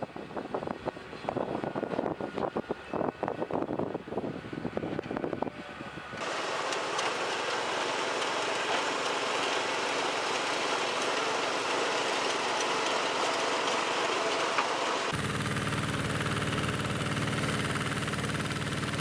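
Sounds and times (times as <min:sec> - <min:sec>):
potato harvester clattering: 0:06.2 - 0:18.4.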